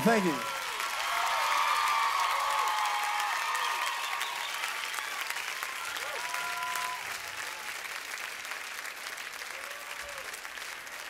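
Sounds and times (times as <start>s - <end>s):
audience applauding: 0.0s - 11.0s
crowd cheering: 0.0s - 11.0s.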